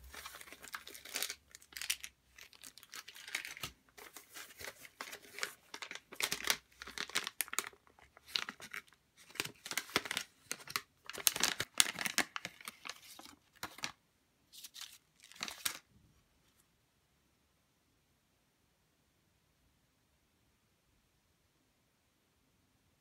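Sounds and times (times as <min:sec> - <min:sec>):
plastic packaging crinkling: 0:00.0 - 0:15.9.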